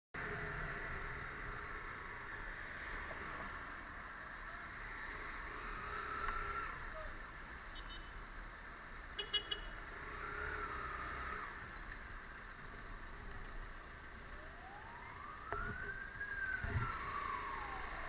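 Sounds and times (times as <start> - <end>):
siren wailing: 0.2 - 18.0
traffic rumble: 0.2 - 18.0.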